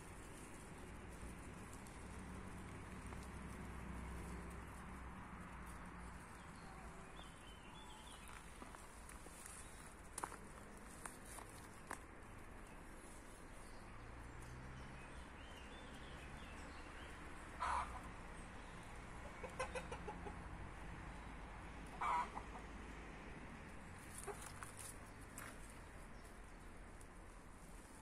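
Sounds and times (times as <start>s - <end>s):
chickens clucking: 19.2s - 20.6s, 21.8s - 22.8s, 24.1s - 24.7s.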